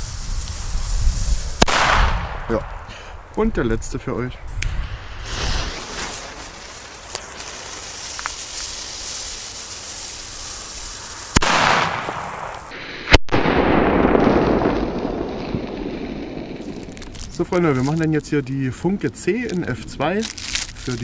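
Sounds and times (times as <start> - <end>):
firecracker crack: 0.0 - 3.5, 4.5 - 18.4, 19.1 - 21.0
firecracker bang: 1.6 - 3.1, 11.2 - 17.2.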